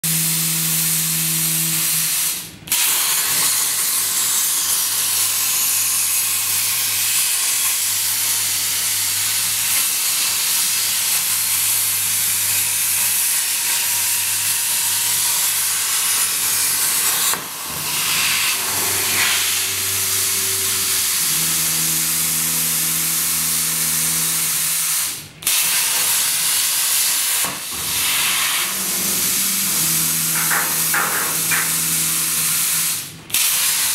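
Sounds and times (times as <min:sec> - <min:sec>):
plasma torch hissing: 0:00.2 - 0:33.9
low hum: 0:17.6 - 0:24.8, 0:27.8 - 0:33.2.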